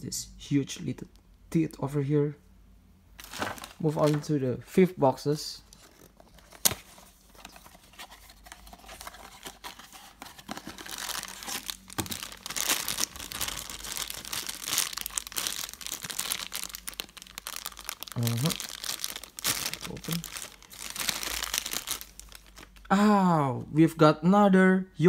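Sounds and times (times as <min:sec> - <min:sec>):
foil bag crinkling and tearing: 0:03.2 - 0:04.3, 0:08.8 - 0:22.8.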